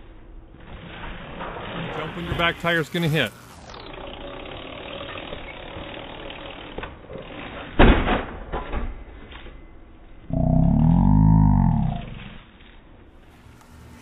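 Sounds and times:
bike wheels striking concrete ledge: 3.5s - 9.6s.

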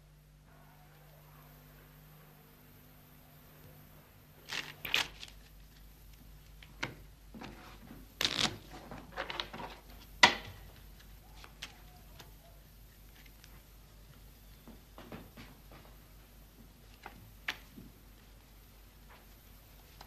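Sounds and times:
playing cards shuffling: 4.4s - 5.9s, 7.4s - 8.8s.

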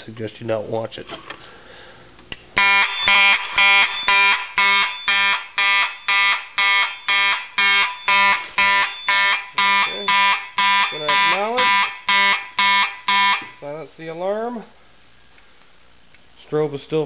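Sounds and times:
fire alarm horn blasts: 2.6s - 13.6s.

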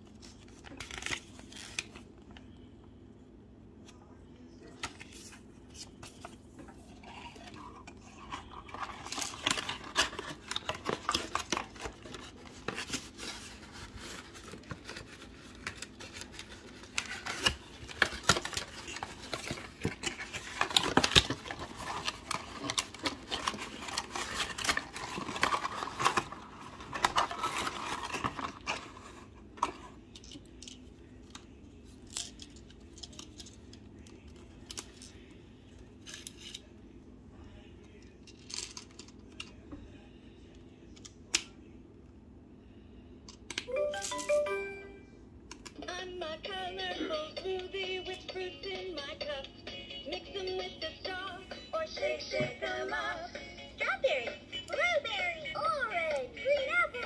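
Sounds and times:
cardboard and plastic rustling: 4.8s - 30.0s.

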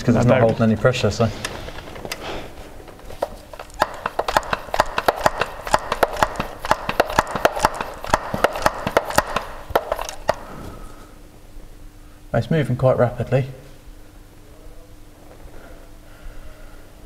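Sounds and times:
oil pump clicking and popping: 3.0s - 10.4s.

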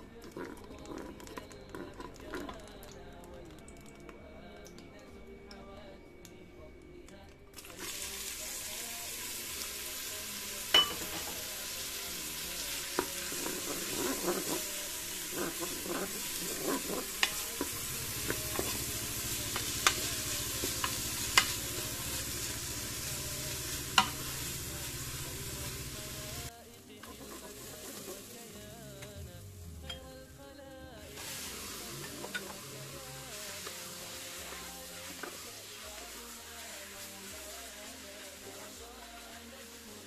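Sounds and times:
onions sizzling in oil: 7.6s - 29.6s, 31.1s - 40.0s
spoon knocking against pot: 10.7s - 11.3s, 24.0s - 24.2s
wooden spoon scraping: 12.8s - 22.0s.

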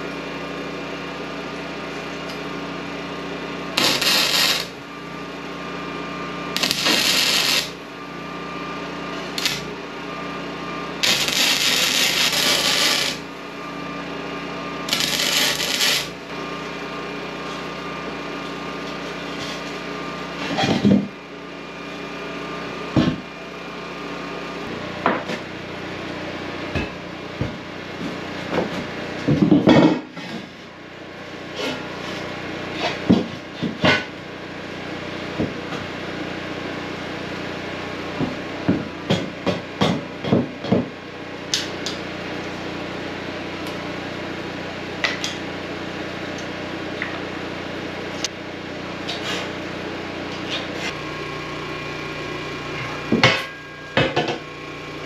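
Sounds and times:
steady hum: 3.0s - 25.9s.

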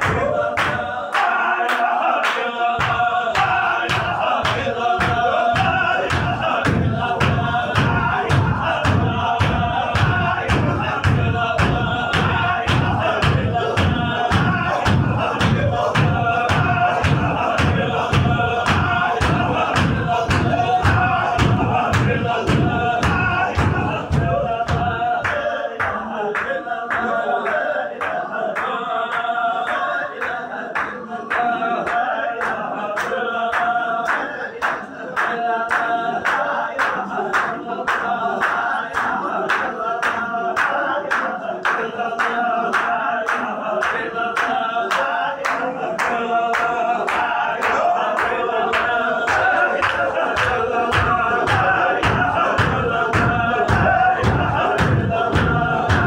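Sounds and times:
men chanting in unison: 0.0s - 56.0s
sharp rhythmic beat: 0.0s - 56.0s
heavy low thumps: 4.8s - 25.2s.

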